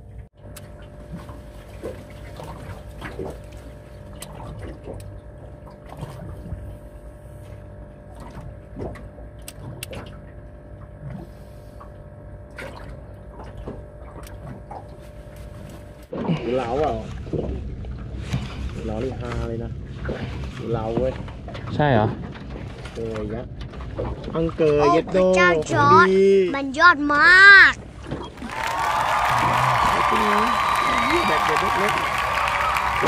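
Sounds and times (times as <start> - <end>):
steady low hum: 0.0 - 33.0
water lapping against boat hull: 0.0 - 33.0.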